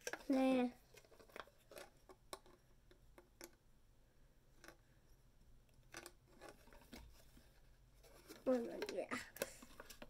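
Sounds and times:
plastic tubes clicking together: 0.0 - 3.6, 4.6 - 4.8, 5.6 - 7.1, 8.1 - 10.0.

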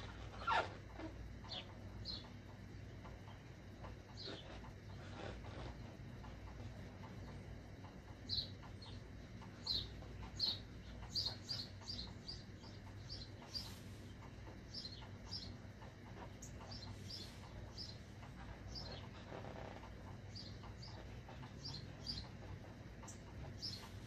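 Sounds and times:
marker squeaking on balloon: 0.0 - 1.2.

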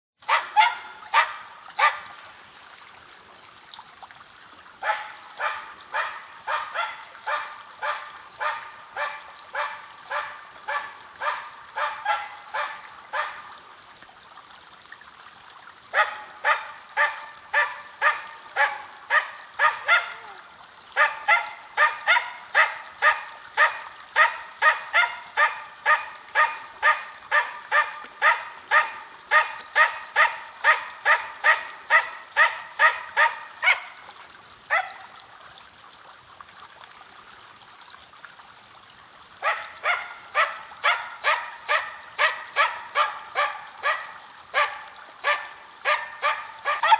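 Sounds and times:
dog barking rapidly: 0.2 - 2.0, 4.8 - 13.4, 16.0 - 20.2, 21.0 - 34.0, 34.7 - 35.0, 39.4 - 46.9.

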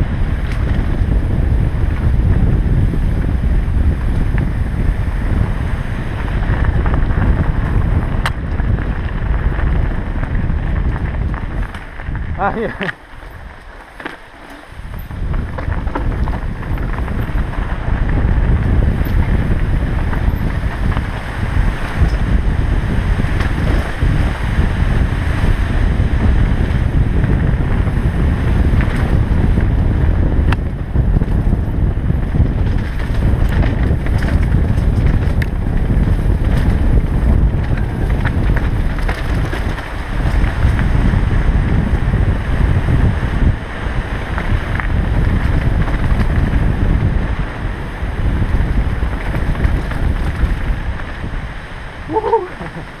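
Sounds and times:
tyres rolling over gravel: 0.0 - 53.0
wind buffeting microphone: 0.0 - 53.0
bike rattling clicks: 0.3 - 2.2, 2.9 - 24.4, 32.4 - 41.1, 44.3 - 46.8, 48.3 - 51.2.

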